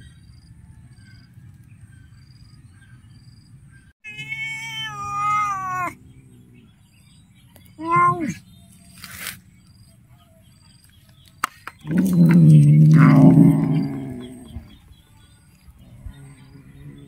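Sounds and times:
cat meowing: 4.0s - 6.0s.

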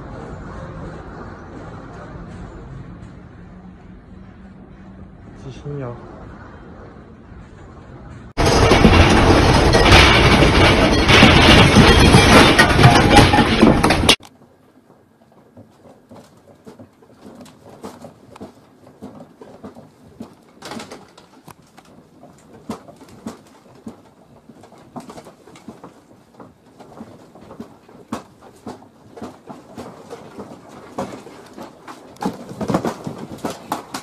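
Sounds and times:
room contents rattling in earthquake: 7.4s - 34.0s.

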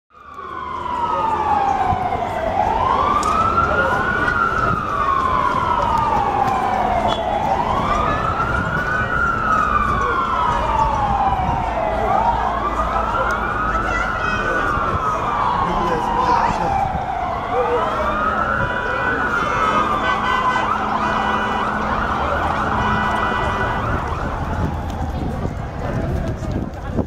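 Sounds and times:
emergency siren wailing: 0.1s - 27.0s
low street rumble: 0.1s - 27.0s.

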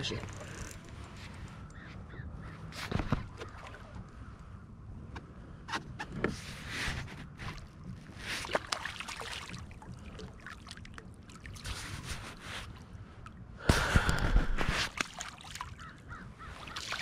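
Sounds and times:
fish splashing in water: 8.4s - 11.8s, 14.9s - 15.9s, 16.6s - 17.0s.

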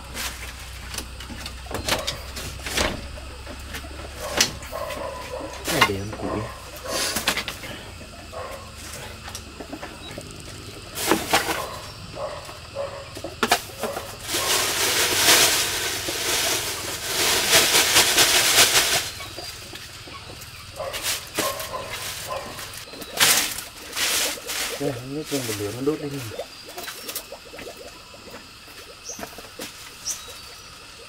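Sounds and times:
plastic bag rustling: 10.8s - 20.0s, 20.7s - 26.3s.

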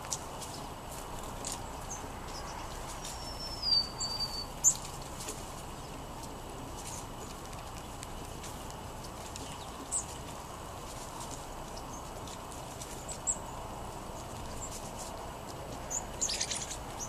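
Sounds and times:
bird sharp chips: 0.0s - 17.0s
songbird high whistle: 3.2s - 4.5s.

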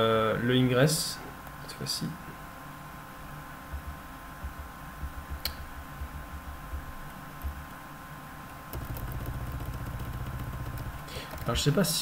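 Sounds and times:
low steady hum: 0.0s - 12.0s
typing on computer keyboard: 8.7s - 12.0s.

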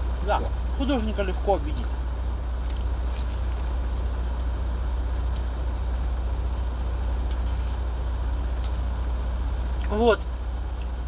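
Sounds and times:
truck idling rumble: 0.0s - 11.0s
short hiss: 7.3s - 7.8s
faint eating clicks: 9.7s - 11.0s.

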